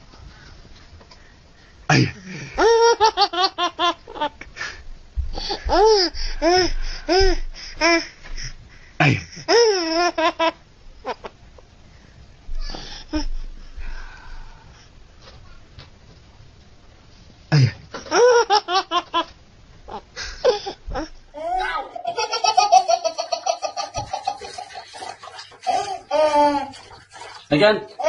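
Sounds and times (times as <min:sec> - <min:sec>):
baby laughing: 0:05.4 - 0:08.0, 0:09.5 - 0:11.4, 0:17.9 - 0:19.3, 0:19.9 - 0:28.0.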